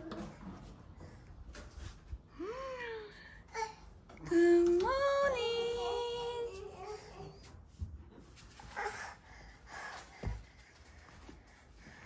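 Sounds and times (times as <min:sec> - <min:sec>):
woman's sing-song morning greeting: 0:04.2 - 0:07.0.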